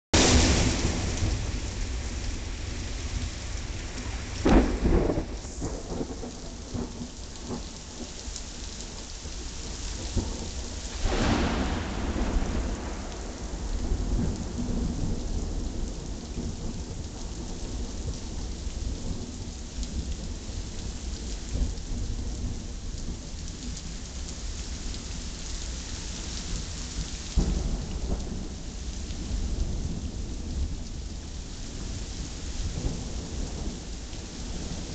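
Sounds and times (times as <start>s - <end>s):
loud thunderclaps: 0.1s - 7.7s, 10.0s - 18.1s
rain falling: 0.1s - 34.9s
thunder rumbling: 0.2s - 9.1s, 10.0s - 19.3s.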